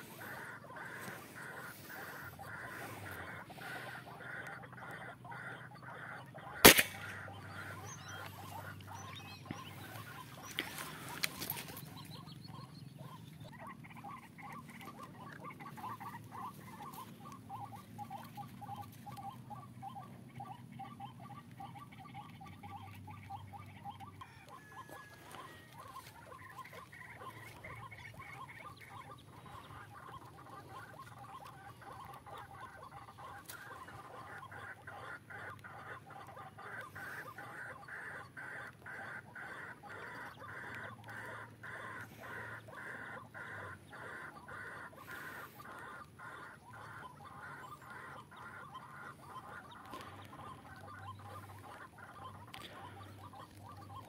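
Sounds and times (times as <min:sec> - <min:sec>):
pulsing bird call: 0:00.0 - 0:54.0
air rifle shot: 0:06.6 - 0:07.2.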